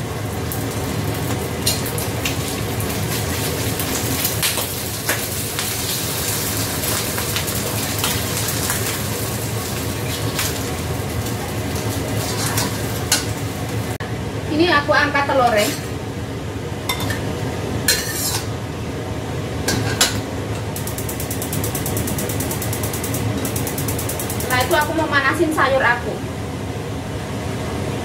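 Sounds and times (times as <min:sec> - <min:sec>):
egg sizzling in oil: 0:00.0 - 0:14.0, 0:20.6 - 0:25.0.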